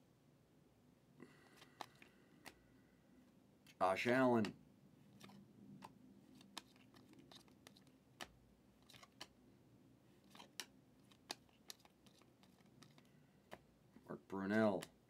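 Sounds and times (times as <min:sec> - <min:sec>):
trading cards clicking: 0:01.3 - 0:02.6, 0:04.4 - 0:09.4, 0:10.2 - 0:13.7.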